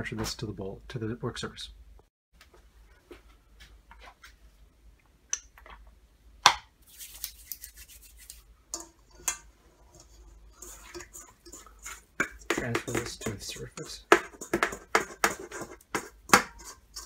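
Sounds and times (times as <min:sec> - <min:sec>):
oiled hands rubbing: 0:06.8 - 0:08.5
metal bowl knocking on stone: 0:12.2 - 0:16.6.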